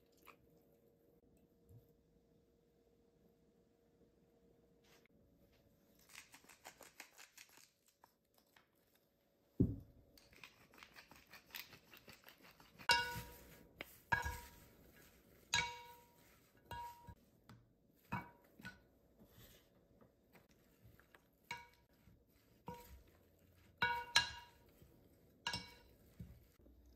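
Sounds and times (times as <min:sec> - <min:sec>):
dull thump: 0:09.6 - 0:09.9.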